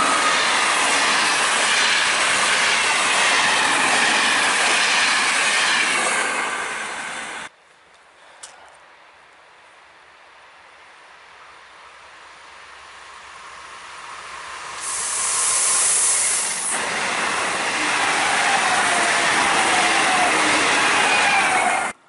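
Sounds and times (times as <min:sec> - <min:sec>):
electric train passing at speed: 0:00.0 - 0:07.5, 0:11.2 - 0:22.0
train hiss: 0:12.6 - 0:21.9.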